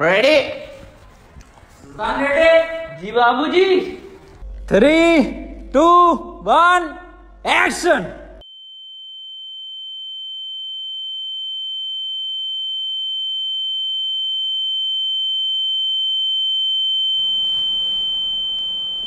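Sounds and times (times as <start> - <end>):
high-pitched electronic beep tone: 16.8 - 19.0.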